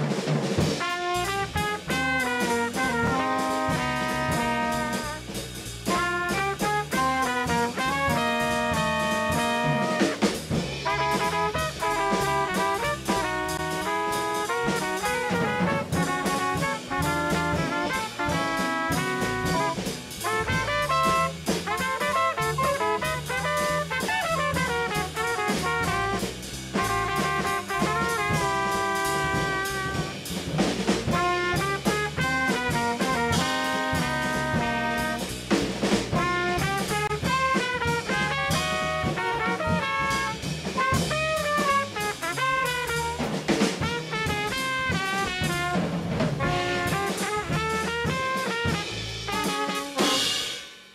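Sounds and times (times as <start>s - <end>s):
bass: 0.0s - 50.9s
congas: 0.0s - 50.9s
drum kit: 0.0s - 50.9s
saxophone melody: 2.0s - 5.1s, 6.0s - 10.2s, 10.8s - 26.2s, 26.9s - 30.1s, 31.2s - 35.2s, 36.2s - 40.4s, 46.4s - 50.3s.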